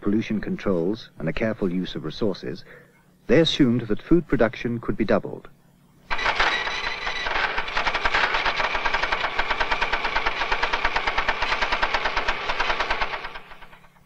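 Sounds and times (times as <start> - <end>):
line printer clattering: 6.1 - 14.0.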